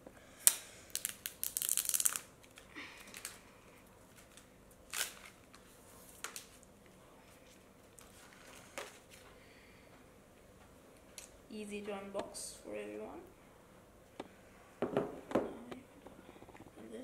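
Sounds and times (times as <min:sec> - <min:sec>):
plastic shrink-wrap crinkling: 0:00.9 - 0:03.5, 0:04.1 - 0:06.7.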